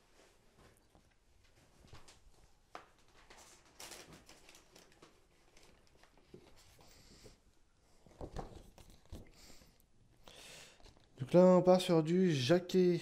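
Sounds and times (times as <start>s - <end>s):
paper rustling: 1.8s - 7.3s, 8.0s - 9.7s.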